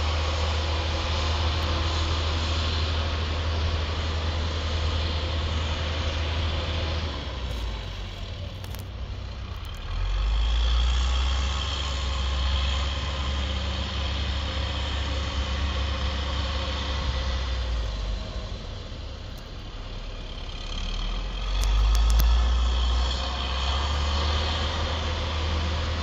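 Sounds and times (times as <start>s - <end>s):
diesel engine drone: 0.0s - 26.0s.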